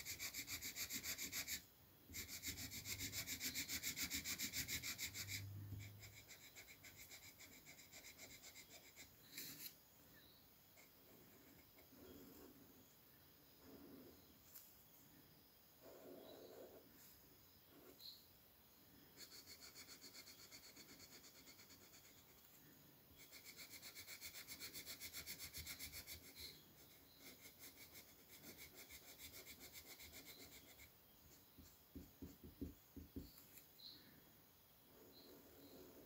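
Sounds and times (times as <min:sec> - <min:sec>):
marker scrubbing on paper: 0:00.0 - 0:09.8, 0:19.2 - 0:22.4, 0:23.2 - 0:32.7.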